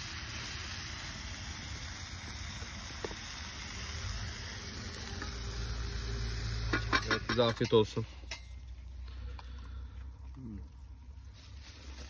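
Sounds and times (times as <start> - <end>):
vegetables frying in a pan: 0.0 - 8.1.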